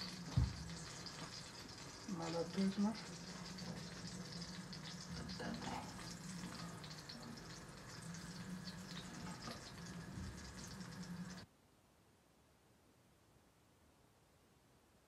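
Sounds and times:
garlic sizzling in butter: 0.0s - 11.4s.

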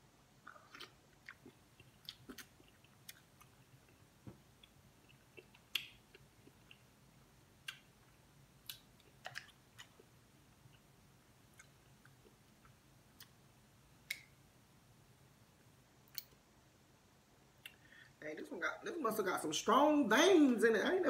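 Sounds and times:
wet chewing and smacking: 0.4s - 7.0s, 7.6s - 10.9s, 11.5s - 13.4s.

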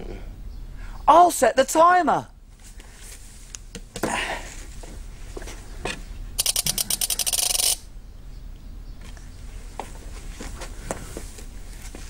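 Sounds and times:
kitchen timer dial clicking: 6.4s - 7.8s.

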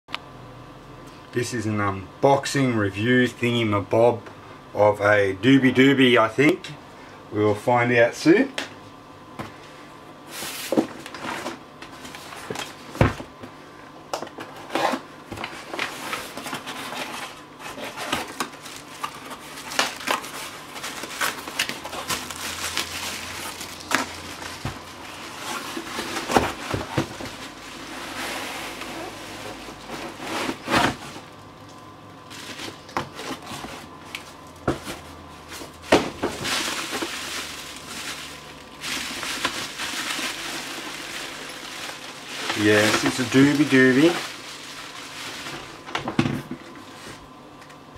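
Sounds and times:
bubble wrap crinkling: 15.5s - 31.4s, 32.3s - 46.0s
cardboard and tape tearing: 15.7s - 31.1s, 35.9s - 45.7s.

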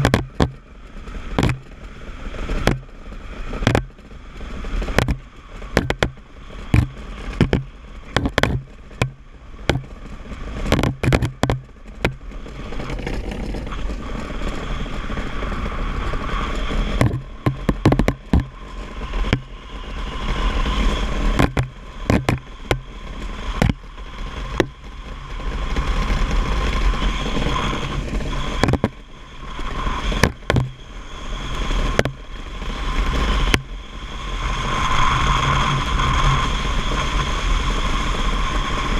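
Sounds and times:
sharp knocks and clatters: 0.0s - 0.6s, 1.3s - 1.8s, 2.5s - 3.0s, 3.6s - 4.1s, 4.8s - 14.6s, 16.6s - 19.5s, 21.3s - 23.9s, 24.5s - 25.0s, 28.6s - 29.0s, 30.2s - 30.8s, 31.9s - 32.2s
faint whine: 0.0s - 38.9s.

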